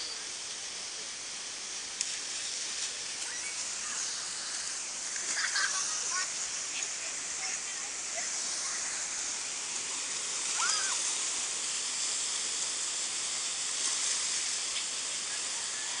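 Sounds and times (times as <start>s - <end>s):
rushing river water: 0.0s - 16.0s.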